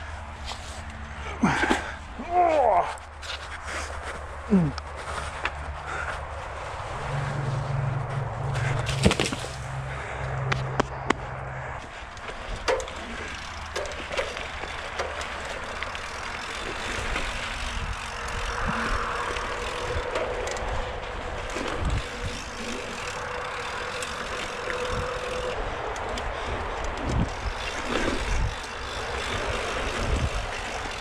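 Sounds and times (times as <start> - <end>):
tyre noise on dirt: 0.0 - 31.0
bike clattering over bumps: 8.0 - 31.0
wind on microphone: 17.6 - 23.1, 26.5 - 31.0.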